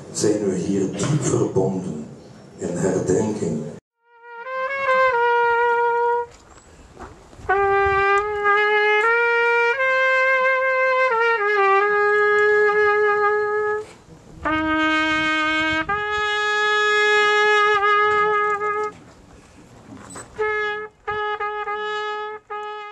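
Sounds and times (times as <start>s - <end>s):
solo trumpet playing slow call: 4.0s - 6.4s, 7.4s - 19.1s, 20.2s - 22.9s.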